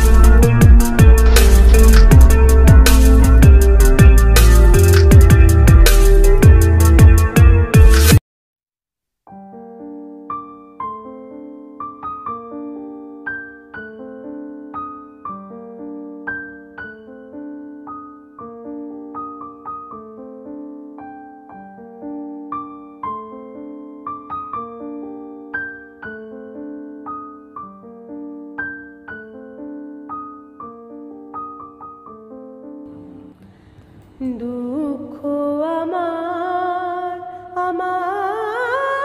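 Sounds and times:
keyboard playing slow melody: 0:00.0 - 0:08.2.

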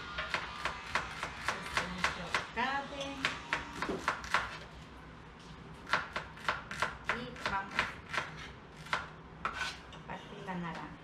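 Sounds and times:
knives chopping on cutting boards: 0:03.2 - 0:04.7, 0:05.9 - 0:09.7.

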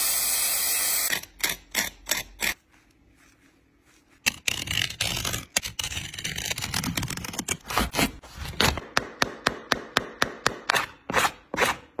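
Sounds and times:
knife cutting and scraping shoe: 0:04.2 - 0:08.9, 0:10.5 - 0:12.0.

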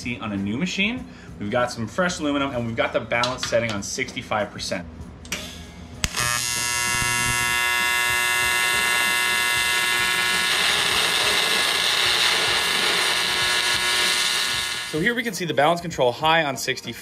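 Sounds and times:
welding arc buzzing and hissing: 0:06.0 - 0:15.1.

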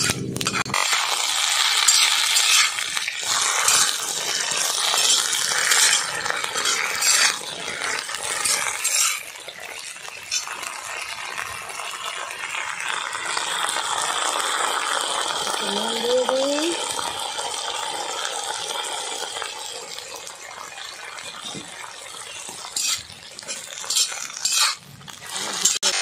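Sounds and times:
metal spatula scraping pan: 0:00.0 - 0:10.7, 0:22.2 - 0:26.0
okra sizzling in hot oil: 0:00.0 - 0:26.0.

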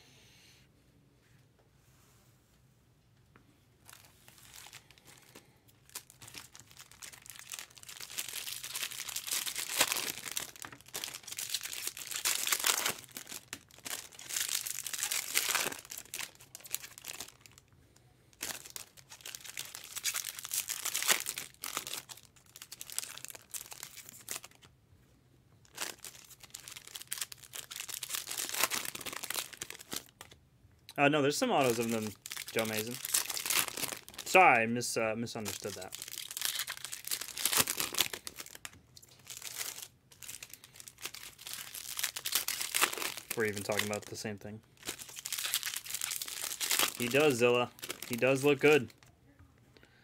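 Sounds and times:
card pack wrappers tearing and crinkling: 0:03.9 - 0:17.7, 0:18.3 - 0:24.7, 0:25.6 - 0:30.4, 0:31.5 - 0:34.5, 0:35.4 - 0:49.1.

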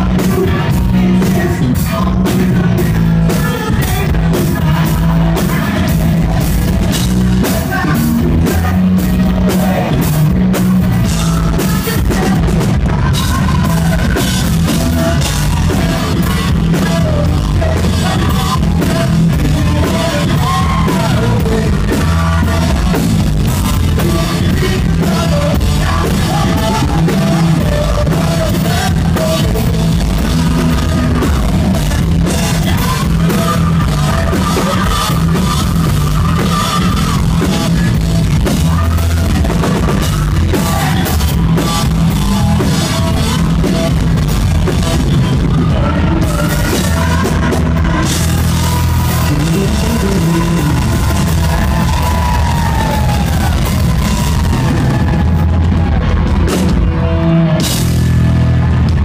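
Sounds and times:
person singing: 0:00.0 - 0:57.8
rock band playing loud: 0:00.0 - 0:59.0.

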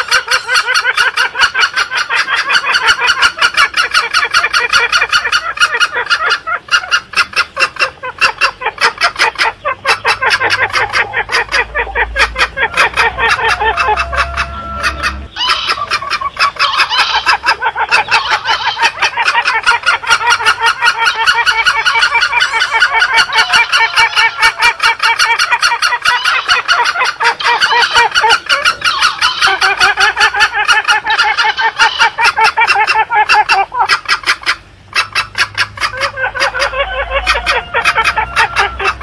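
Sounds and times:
rapid overlapping fowl calls: 0:00.0 - 0:39.0.

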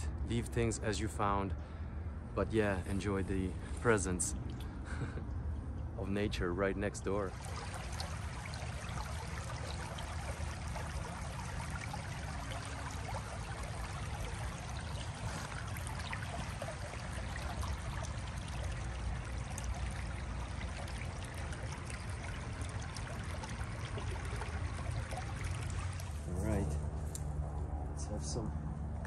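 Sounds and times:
creek water running over rocks: 0:07.0 - 0:26.7.

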